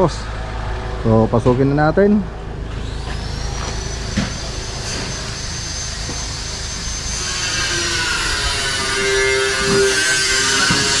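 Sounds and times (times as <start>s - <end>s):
mechanical drone with high whine: 0.0s - 11.0s.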